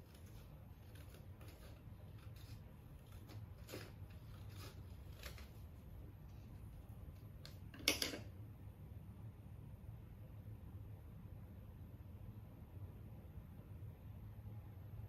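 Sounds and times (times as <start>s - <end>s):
scissors snipping paper: 0.0s - 5.8s
scissors clattering on a table: 7.5s - 8.3s.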